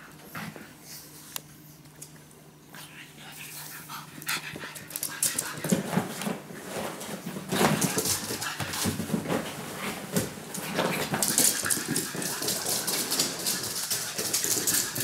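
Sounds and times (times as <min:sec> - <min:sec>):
scuffling and paw clicks on floor: 0:04.6 - 0:15.0.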